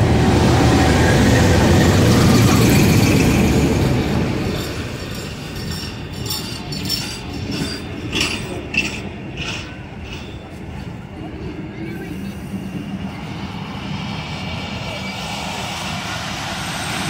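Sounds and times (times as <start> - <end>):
diesel locomotive engine rumble: 0.0 - 17.0
train running gear clicks: 4.5 - 11.0.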